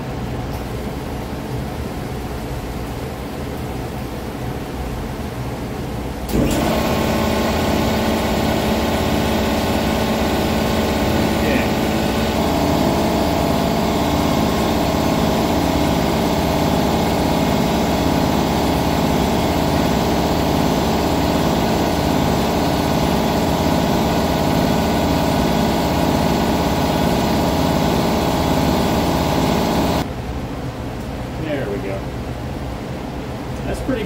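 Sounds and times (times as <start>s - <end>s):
air compressor motor running: 6.2s - 30.1s.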